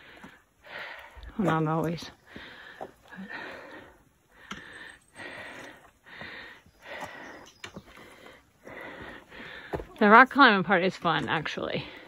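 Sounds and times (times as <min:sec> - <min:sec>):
heavy panting breaths: 0:02.2 - 0:09.9.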